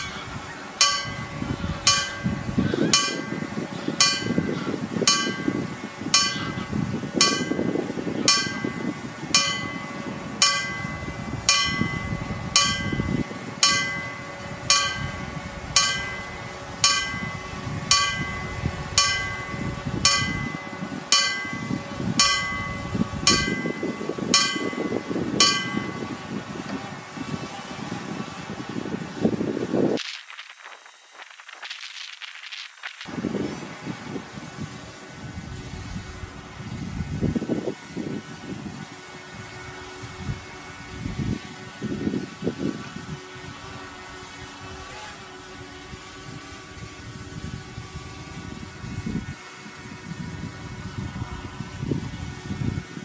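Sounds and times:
level crossing warning bell: 0:00.8 - 0:26.5.

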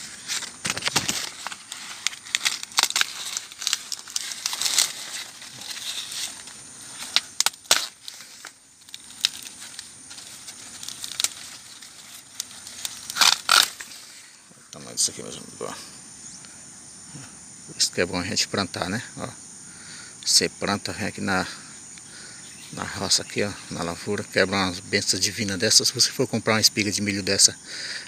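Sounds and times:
corn stalks snapping: 0:00.0 - 0:14.0
dry corn leaves rustling: 0:00.0 - 0:15.3
crickets chirring: 0:00.0 - 0:28.0.

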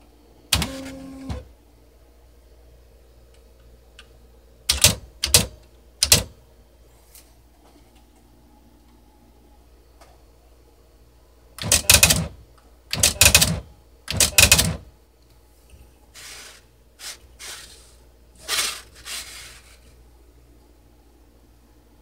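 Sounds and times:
daisy-wheel printer printing: 0:00.6 - 0:01.5, 0:11.6 - 0:12.3, 0:13.0 - 0:14.8.

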